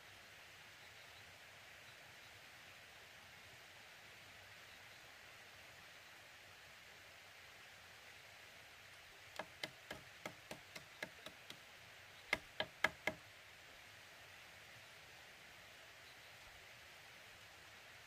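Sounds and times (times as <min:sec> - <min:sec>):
knocking on bamboo poles: 0:09.4 - 0:11.6, 0:12.3 - 0:13.2.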